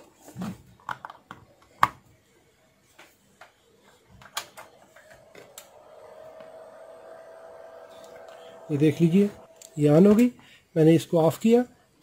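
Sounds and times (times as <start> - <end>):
transformer hum: 4.0 - 10.6.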